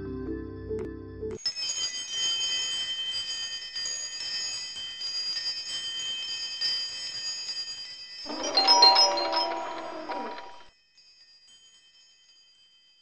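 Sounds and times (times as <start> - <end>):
shimmering high chimes: 1.5 - 13.0
bright chime jingle sting: 8.3 - 10.6.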